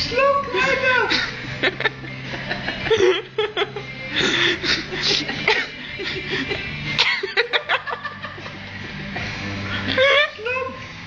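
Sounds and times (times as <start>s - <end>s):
background music: 0.0s - 11.0s
people laughing: 1.1s - 8.7s.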